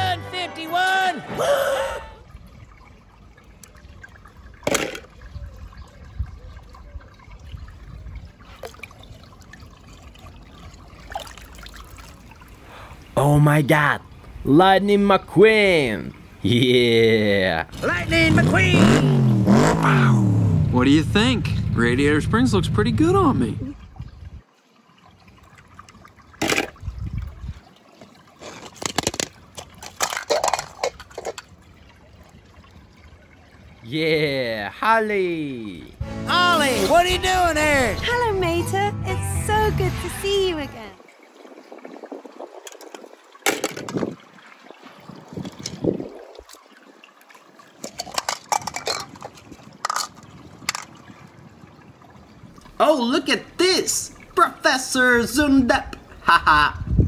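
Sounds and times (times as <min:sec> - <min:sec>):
water trickling and lapping: 0:00.8 - 0:36.0, 0:40.3 - 0:57.0
small water splashes: 0:02.1 - 0:13.2, 0:23.2 - 0:33.9, 0:41.0 - 0:56.2.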